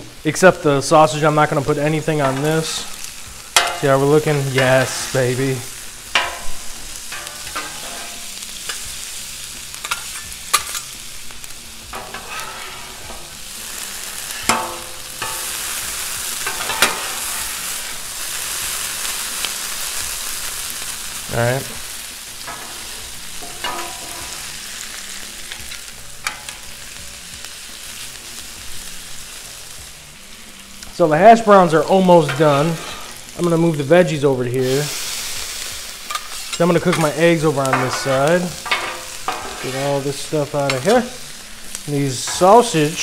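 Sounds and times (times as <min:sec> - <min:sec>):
food sizzling on a griddle: 0:00.0 - 0:43.0
metal spatulas scraping and clanking: 0:02.2 - 0:05.2, 0:06.1 - 0:08.8, 0:09.8 - 0:10.9, 0:11.9 - 0:13.4, 0:14.2 - 0:15.8, 0:16.4 - 0:17.6, 0:22.5 - 0:24.5, 0:32.2 - 0:33.3, 0:36.1 - 0:41.3, 0:42.0 - 0:43.0.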